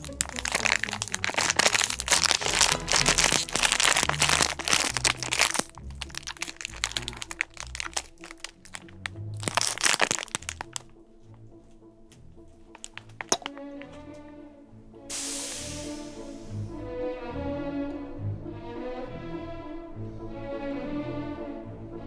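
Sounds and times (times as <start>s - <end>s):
plastic wrapper crackling: 0.0s - 11.0s, 12.7s - 13.7s
ice cream bar crunching: 0.0s - 11.5s, 12.6s - 14.0s
background music: 0.0s - 22.0s.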